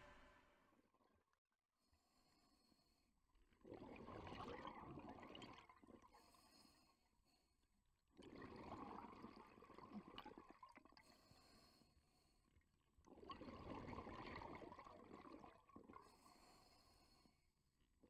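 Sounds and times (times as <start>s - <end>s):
gurgling exhaled bubbles: 3.6s - 6.2s, 8.2s - 11.0s, 13.1s - 16.2s.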